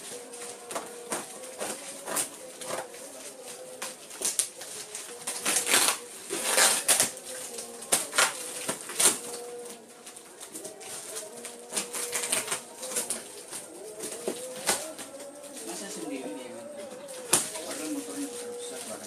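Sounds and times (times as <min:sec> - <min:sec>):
packaging crackling and ripping: 0:00.0 - 0:19.0.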